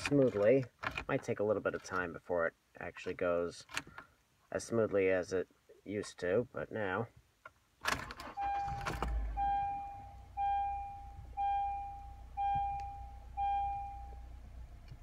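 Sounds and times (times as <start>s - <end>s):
dashboard warning chime: 8.2s - 14.4s
low steady hum: 8.3s - 15.0s.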